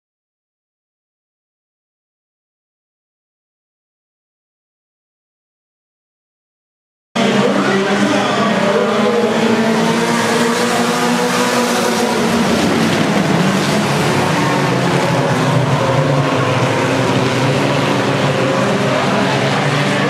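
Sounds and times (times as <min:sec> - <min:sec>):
race car engines droning: 0:07.2 - 0:20.0.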